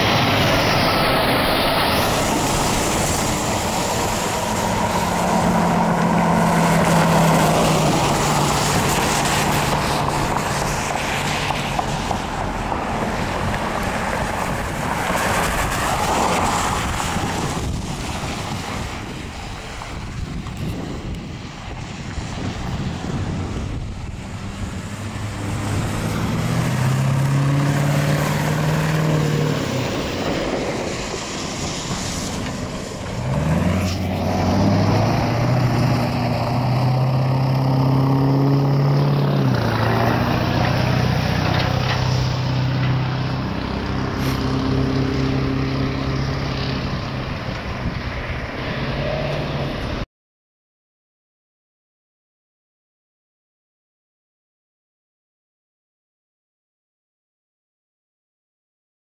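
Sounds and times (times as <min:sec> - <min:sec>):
vehicle engines in traffic: 0:00.0 - 0:50.1.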